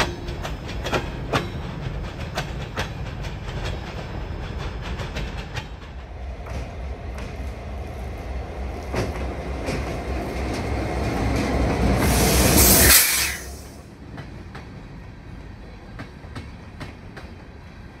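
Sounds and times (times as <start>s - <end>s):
wheels clicking over rail joints: 0.0s - 12.1s
freight train rumbling: 0.0s - 18.0s.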